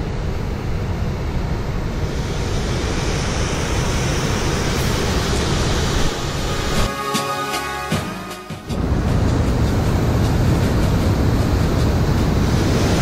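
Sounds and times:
wind rumbling on microphone: 8.8s - 13.0s.

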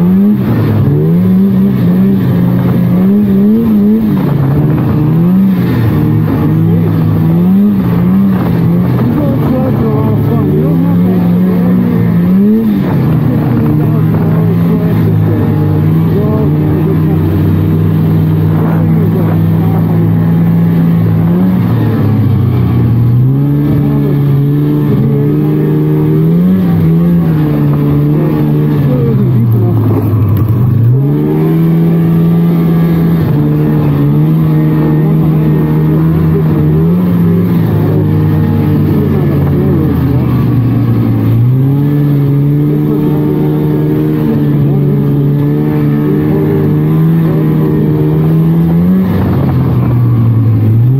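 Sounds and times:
snowmobile engine running: 0.0s - 50.9s.

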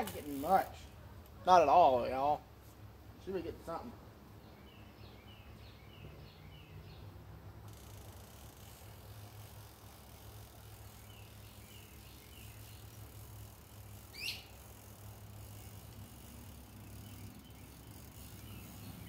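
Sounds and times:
birds chirping: 4.4s - 7.2s, 7.8s - 19.0s
rising bird call: 14.1s - 14.6s.

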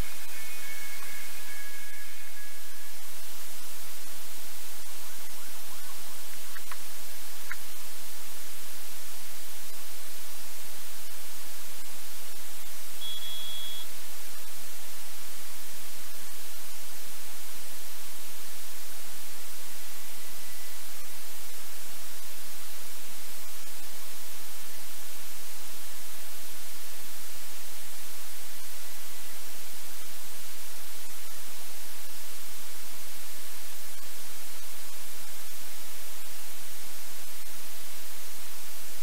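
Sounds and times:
loud hiss of static: 0.0s - 39.0s
short high beep: 13.0s - 13.9s.

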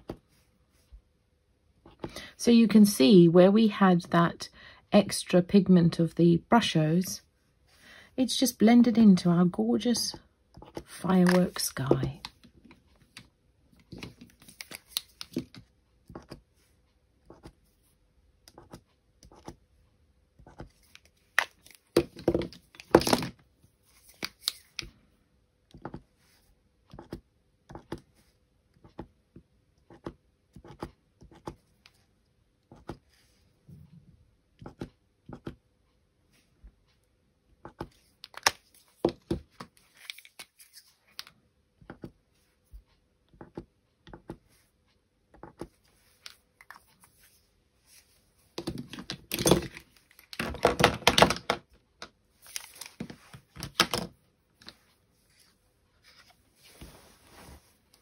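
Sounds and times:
plastic pens clattering: 20.8s - 23.4s, 48.6s - 51.7s, 52.5s - 54.8s.

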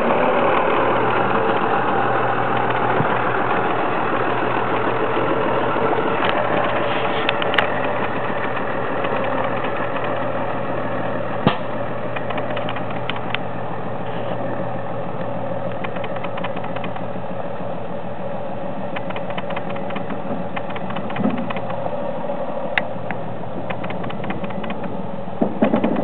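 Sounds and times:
diesel engine running: 0.0s - 26.0s
rattles from truck body: 19.0s - 21.8s, 23.6s - 26.0s
loud knocks: 23.8s - 26.0s.

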